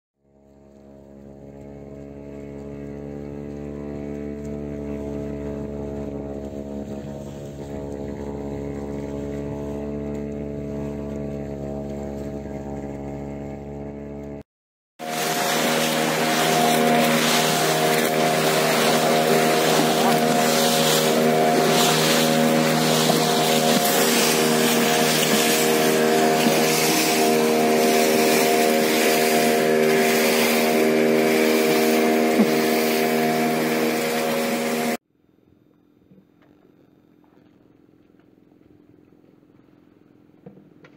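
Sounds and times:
boat engine humming: 0.2 - 35.0
water hissing alongside boat: 0.4 - 14.1, 15.0 - 35.0.

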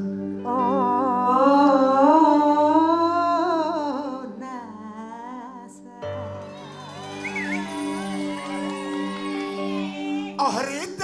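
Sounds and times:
woman singing with vibrato: 0.4 - 6.9
backing music: 6.0 - 11.0.

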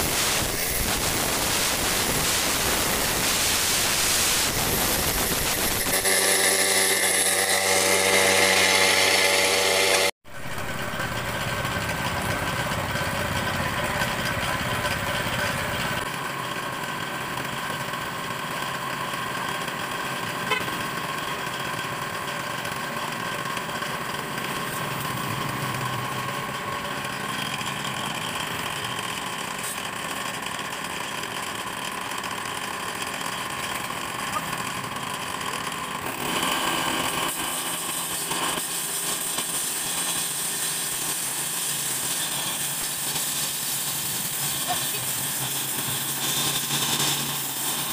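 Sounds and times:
concrete saw cutting concrete: 0.0 - 47.9
saw engine running: 0.0 - 47.9.

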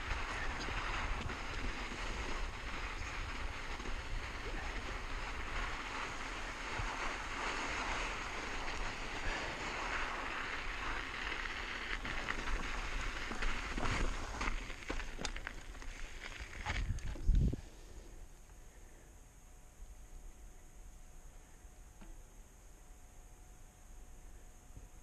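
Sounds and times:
bike tyres rolling over loose rock: 0.0 - 17.6
wind rushing over microphone: 16.7 - 17.7.

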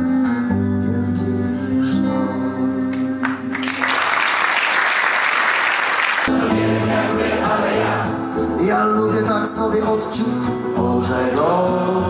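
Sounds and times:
acoustic guitars playing: 0.0 - 3.8, 6.2 - 12.0
audience applauding: 3.2 - 8.0.

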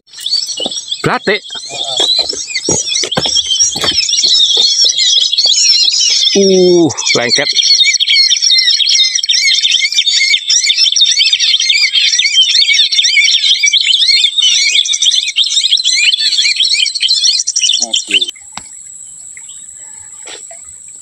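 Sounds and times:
tit chirping rapidly: 0.1 - 9.4.

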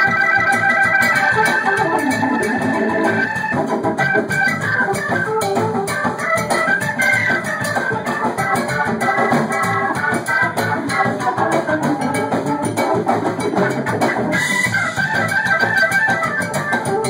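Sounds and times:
electric organ: 0.0 - 17.0
live band playing: 0.0 - 17.0
steady drums: 0.0 - 17.0.

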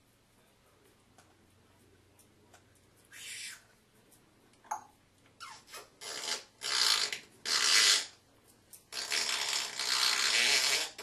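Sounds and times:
parrot hissing: 3.1 - 3.7.

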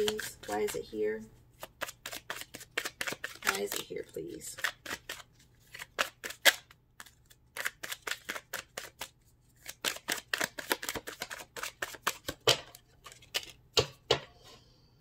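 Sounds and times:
cards being shuffled: 1.5 - 13.9.

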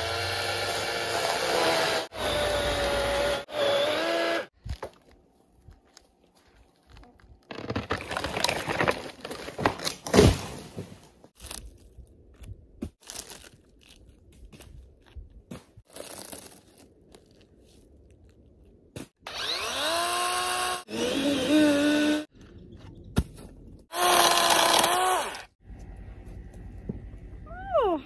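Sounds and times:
electric chainsaw motor whine: 0.0 - 4.5, 19.2 - 22.3
dry wood crunching and snapping: 4.6 - 10.6, 11.4 - 18.4
loud wood crack: 7.5 - 10.9.

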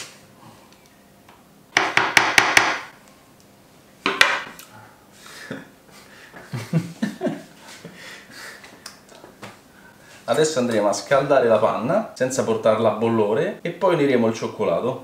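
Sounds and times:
knife chopping on wooden board: 1.8 - 2.9
knock on cutting board: 1.8 - 2.9, 4.1 - 4.5.

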